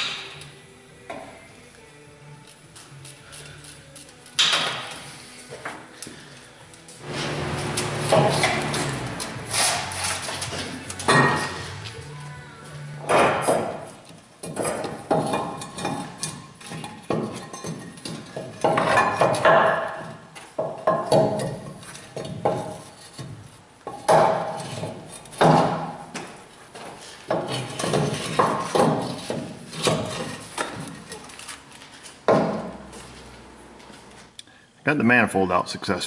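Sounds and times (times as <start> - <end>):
metal part clanking and scraping: 7.1 - 11.8, 14.4 - 19.4.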